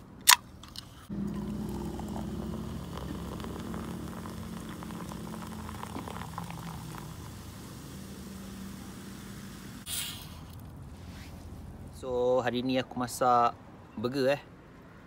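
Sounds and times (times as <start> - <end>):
liquid pouring into metal cup: 1.1 - 9.2.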